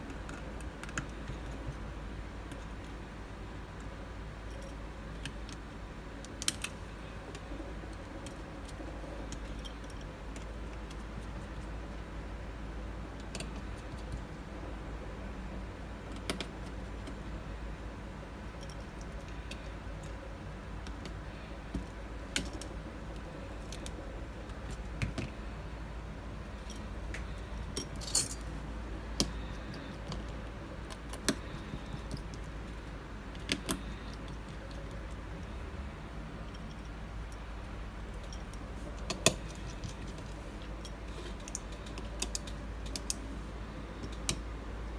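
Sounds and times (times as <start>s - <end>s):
steady low hum: 0.0s - 44.9s
small metal parts clicking: 6.2s - 11.8s, 13.2s - 14.4s, 18.4s - 20.2s, 20.8s - 25.4s, 26.5s - 28.5s, 29.1s - 35.6s, 38.1s - 43.3s.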